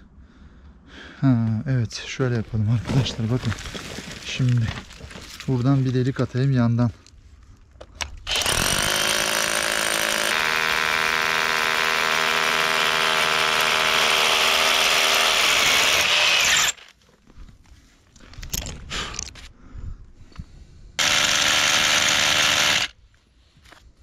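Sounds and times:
hammer drill boring into rock: 8.3 - 16.9, 21.0 - 23.0.

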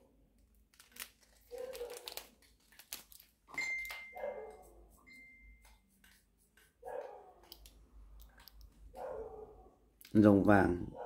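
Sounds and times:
plastic wrapping crinkling: 0.3 - 4.2.

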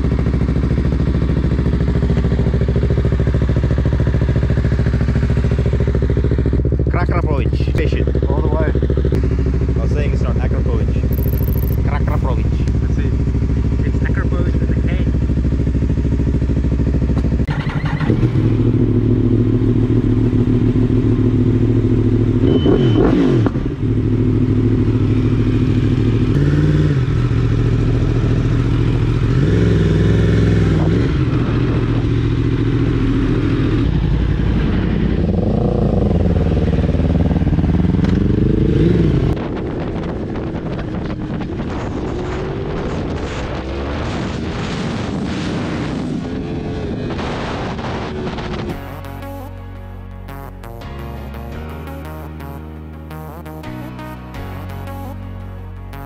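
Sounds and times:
motorcycle engine revving: 0.0 - 56.0
road riding rush: 0.0 - 56.0.

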